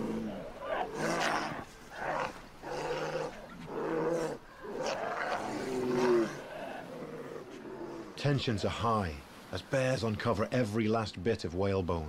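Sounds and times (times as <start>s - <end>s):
polar bears growling: 0.0s - 8.2s.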